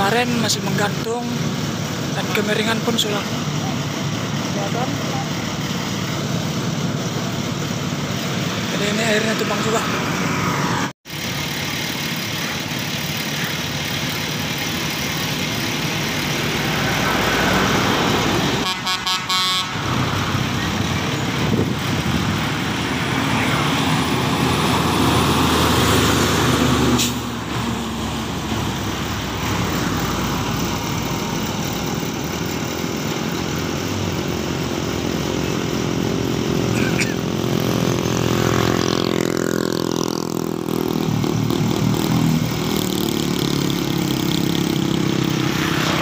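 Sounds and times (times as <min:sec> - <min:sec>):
trucks and cars driving past: 0:00.0 - 0:46.0.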